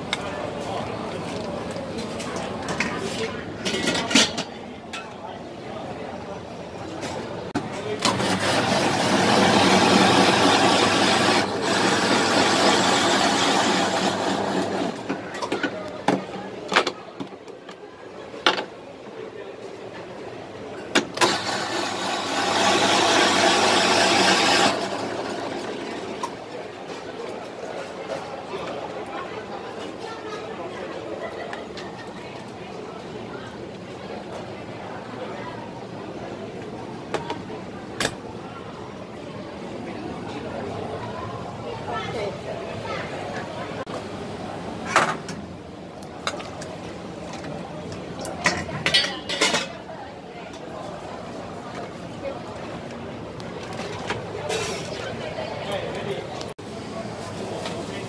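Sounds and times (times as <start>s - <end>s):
background hubbub: 0.0s - 58.0s
metal pots and lids clanking: 3.6s - 5.1s, 48.4s - 49.8s
ice shaver shaving ice: 8.0s - 15.2s, 21.2s - 26.3s.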